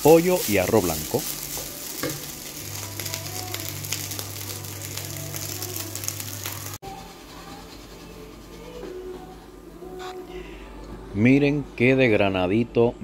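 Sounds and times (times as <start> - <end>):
rice sizzling in a frying pan: 0.0 - 6.8.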